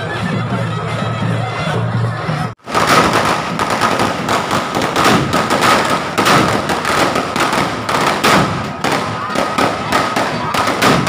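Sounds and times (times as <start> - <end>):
firecrackers popping: 2.6 - 11.0.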